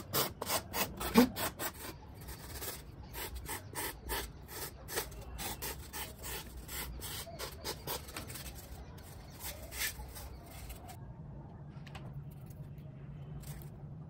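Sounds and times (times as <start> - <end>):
sandpaper rasping on foam: 0.0 - 11.0.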